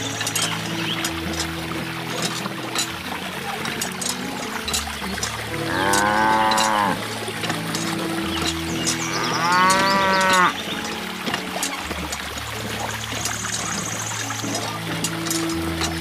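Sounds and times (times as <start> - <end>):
background music: 0.0 - 16.0
trickling water: 0.0 - 16.0
cow mooing: 5.5 - 7.0, 8.9 - 10.6.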